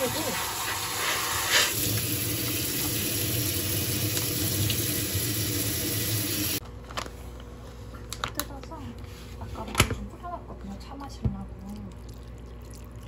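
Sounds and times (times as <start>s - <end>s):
tap water splashing into sink: 1.8s - 5.0s.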